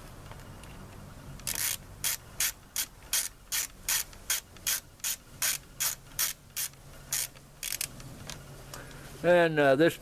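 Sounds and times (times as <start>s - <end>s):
ratchet clicking: 1.4s - 8.0s.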